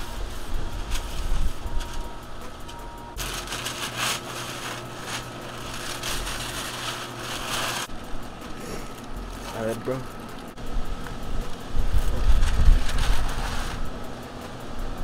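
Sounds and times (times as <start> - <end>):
paper crinkling and rustling: 3.2 - 8.0, 8.9 - 10.5, 12.1 - 13.9.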